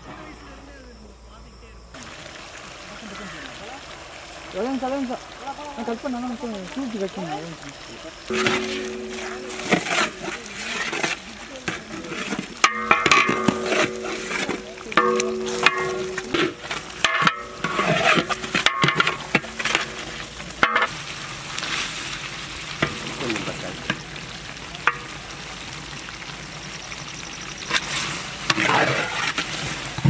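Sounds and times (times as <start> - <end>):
curry sizzling: 1.8 - 30.0
ladle scraping metal pot: 8.3 - 21.0, 27.7 - 30.0.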